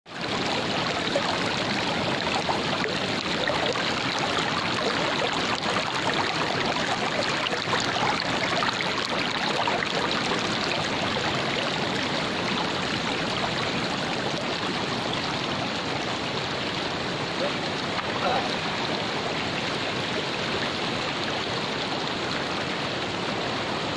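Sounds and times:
stream rushing over stones: 0.1s - 23.9s.

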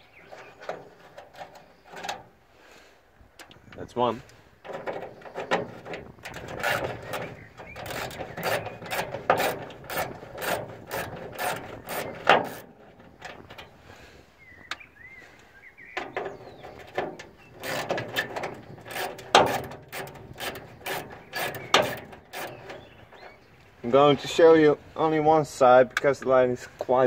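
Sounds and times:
ratchet wrench clicking: 7.8s - 12.6s, 17.6s - 22.7s.

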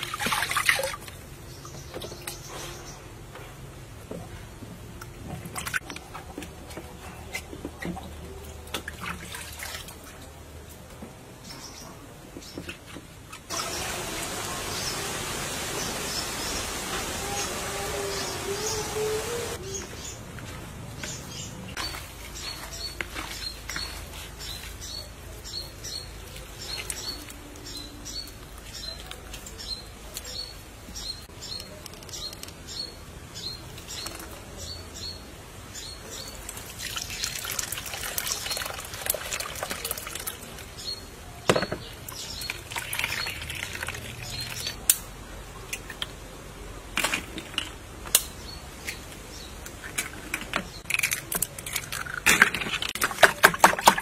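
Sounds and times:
liquid pouring through strainer: 36.6s - 40.6s.

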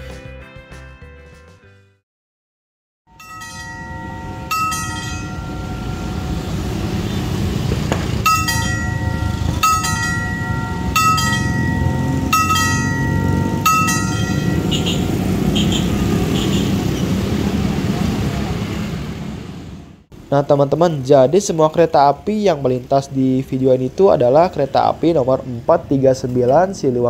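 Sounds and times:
level crossing bell ringing: 3.1s - 16.6s
low rumble of traffic: 3.1s - 27.0s.

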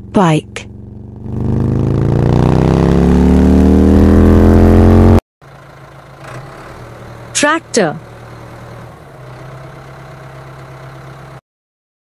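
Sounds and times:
motorcycle engine accelerating: 0.0s - 7.4s
tractor engine idling: 5.4s - 11.4s.

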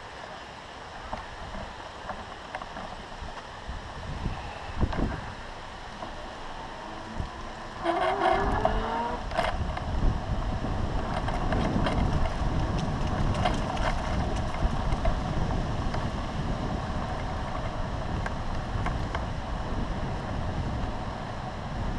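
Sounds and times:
wind rumble on microphone: 0.0s - 21.9s
bike rolling over sandy path: 0.9s - 21.9s
bike knocks and rattles: 5.9s - 16.1s.

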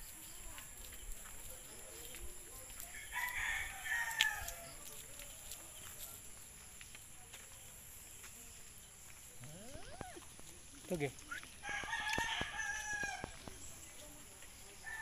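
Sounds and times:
rooster crowing: 3.0s - 4.6s, 11.6s - 13.3s.

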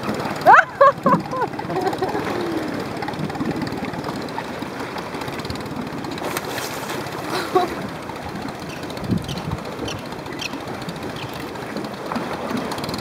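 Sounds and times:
boat engine idling: 0.0s - 13.0s.

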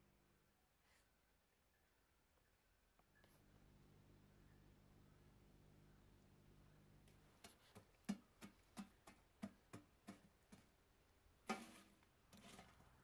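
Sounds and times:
metal poker knocking in embers: 11.5s - 12.7s
poker scraping metal fire-box: 11.5s - 12.9s.

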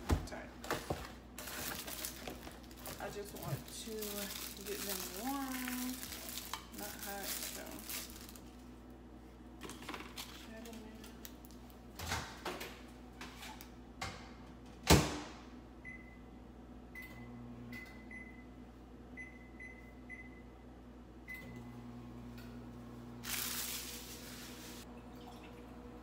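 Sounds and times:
microwave humming: 0.0s - 26.0s
rustling noise: 23.2s - 24.8s.

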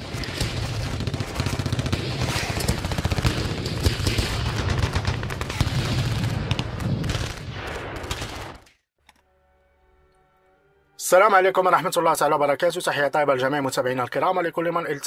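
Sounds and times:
rapid rattle of sharp cracks: 0.0s - 5.8s.

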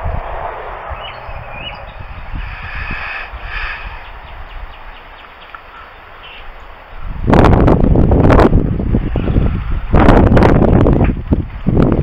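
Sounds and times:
wind rumbling on microphone: 0.0s - 12.0s
bird calls: 0.7s - 7.1s
outdoor hiss: 2.3s - 7.2s.

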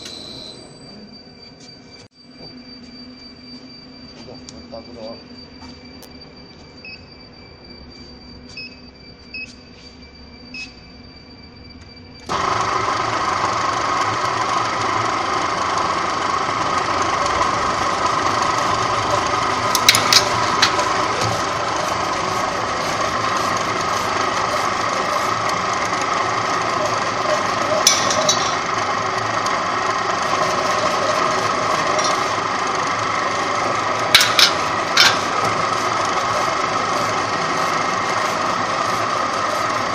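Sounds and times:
roll forming machine running: 12.2s - 39.9s.

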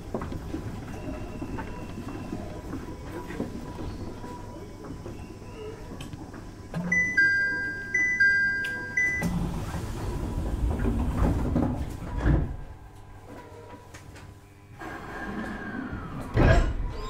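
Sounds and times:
train low rumble: 0.0s - 14.4s
train car hum: 0.0s - 16.8s
two-tone electronic chime: 6.9s - 9.3s.

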